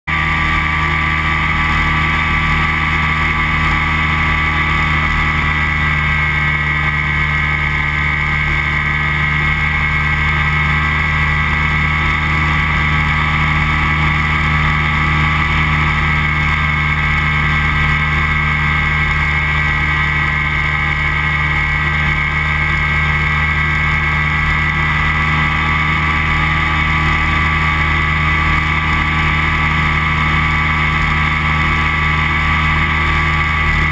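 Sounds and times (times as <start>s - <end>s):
microlight engine and propeller: 0.1s - 33.9s.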